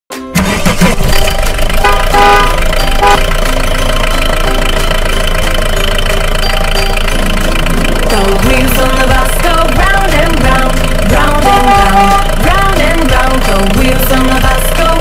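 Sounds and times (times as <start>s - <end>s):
vehicle engine running: 0.4s - 15.0s
short horn toot: 1.8s - 3.2s.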